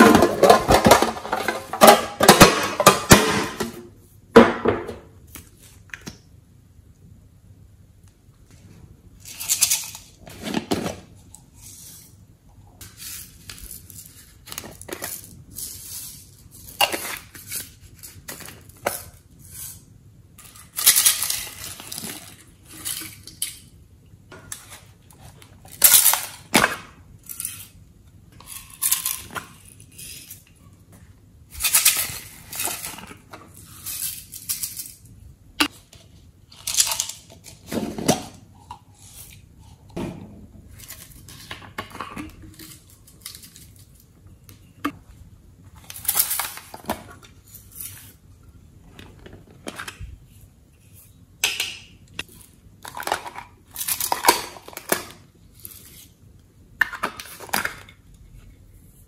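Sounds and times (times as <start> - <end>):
glitter rattling in plastic containers: 0.0 - 3.7, 20.4 - 23.7.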